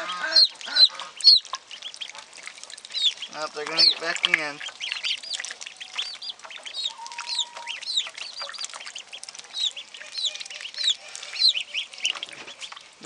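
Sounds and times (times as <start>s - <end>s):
ducklings and chicks peeping: 0.0s - 12.9s.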